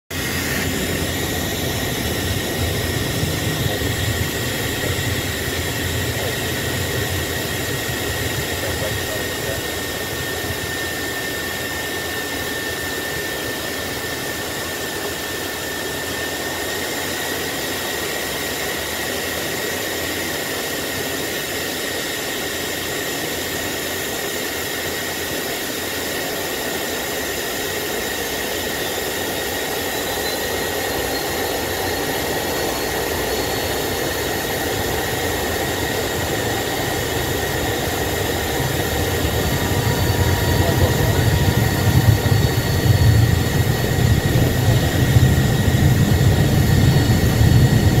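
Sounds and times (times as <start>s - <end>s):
jet engine hum and whine: 0.0s - 48.0s
low engine rumble: 34.5s - 48.0s.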